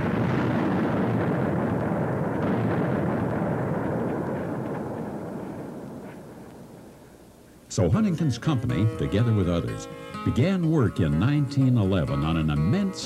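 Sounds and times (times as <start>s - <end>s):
explosion rumble and echo: 0.0s - 7.0s.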